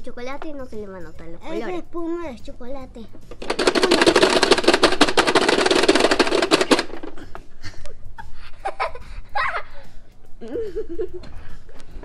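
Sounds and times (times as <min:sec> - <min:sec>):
toy game ticking: 0:03.3 - 0:07.2.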